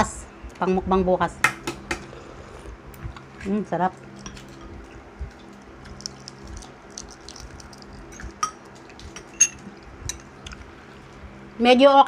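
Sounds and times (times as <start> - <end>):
metal spoons tapping bowls: 9.2 - 10.3.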